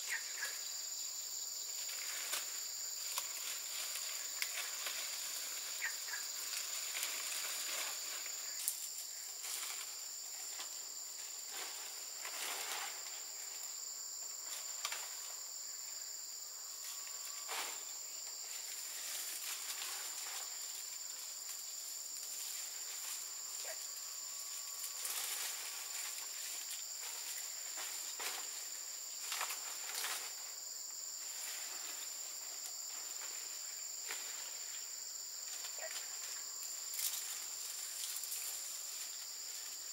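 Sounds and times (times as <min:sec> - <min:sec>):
insects chorus: 0:00.0 - 0:39.9
palm leaves rustling: 0:00.0 - 0:39.9.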